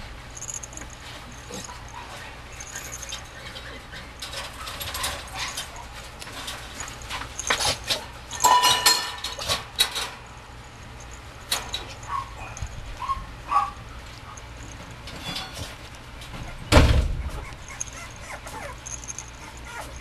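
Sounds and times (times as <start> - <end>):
scuffling clicks and rustles: 0.4 - 20.0
puppy yipping and whimpering: 12.0 - 13.8, 16.4 - 20.0.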